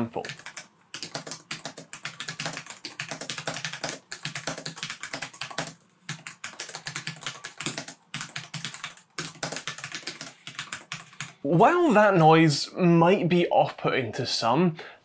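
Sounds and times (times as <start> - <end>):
fast typing on mechanical keyboard: 0.1 - 11.4.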